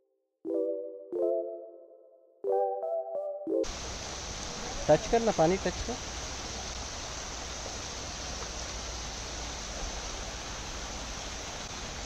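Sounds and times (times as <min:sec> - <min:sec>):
stream running over rocks: 0:03.7 - 0:12.0.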